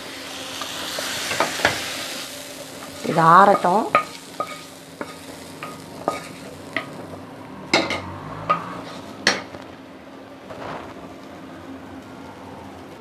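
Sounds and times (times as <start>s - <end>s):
wooden spatula scraping a pan: 2.7s - 7.0s, 8.5s - 9.2s.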